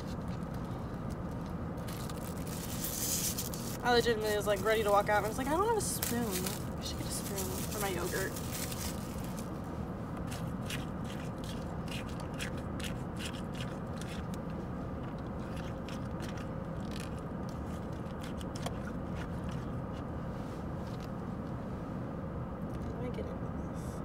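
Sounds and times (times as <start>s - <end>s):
hands rummaging clicks and crinkles: 0.0s - 9.5s
steady low hum: 0.0s - 24.0s.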